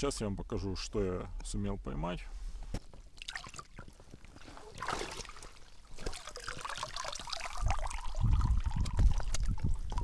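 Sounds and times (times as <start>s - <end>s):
water pouring and dribbling: 2.9s - 10.0s
small splashes: 3.1s - 8.2s.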